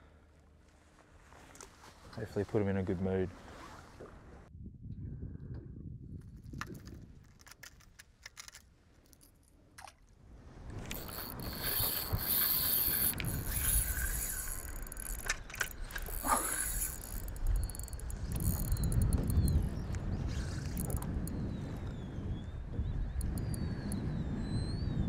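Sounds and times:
wind rumbling on microphone: 3.3 - 25.0
fishing reel gear whirr: 10.7 - 21.4, 23.1 - 24.0
light clicks of line handling: 10.8 - 21.4.

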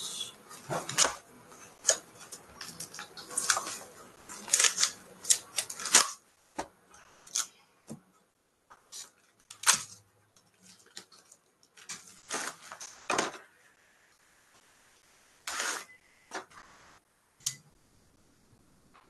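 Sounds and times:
paper ripping and rustling: 1.8 - 6.2, 11.8 - 13.3, 15.4 - 15.9.

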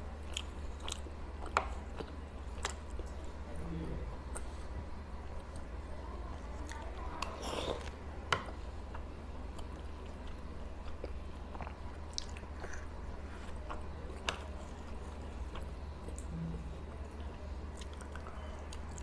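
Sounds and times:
wet chewing sounds: 6.6 - 16.3.

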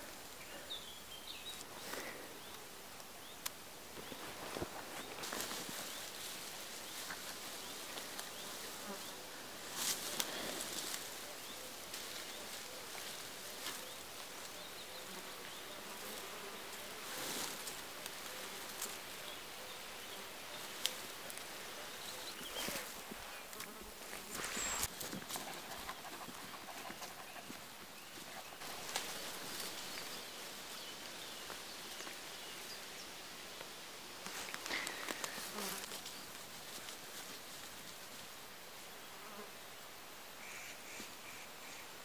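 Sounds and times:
rustles in grass: 0.0 - 42.0
flying insect buzzing: 34.7 - 38.4.

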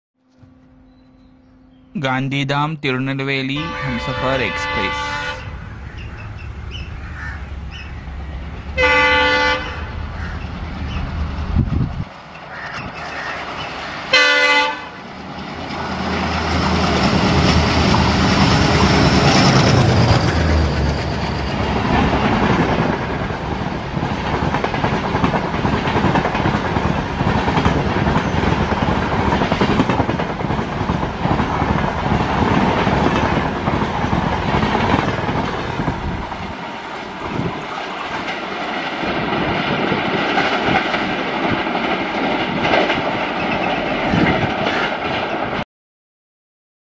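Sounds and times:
locomotive horn blast: 3.5 - 5.8, 8.7 - 10.1, 14.1 - 15.0
locomotive engine passing: 3.5 - 45.6
train coaches rattling over rail joints: 3.5 - 45.6.

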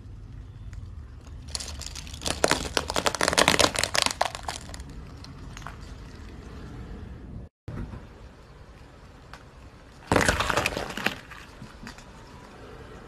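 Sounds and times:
low steady rumble: 0.0 - 10.0
tyre crunching crayons: 0.7 - 5.4.

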